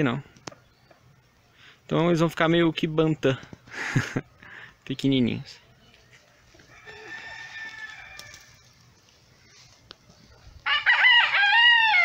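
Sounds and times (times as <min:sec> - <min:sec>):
rooster crowing: 0:06.6 - 0:08.7, 0:10.6 - 0:12.0.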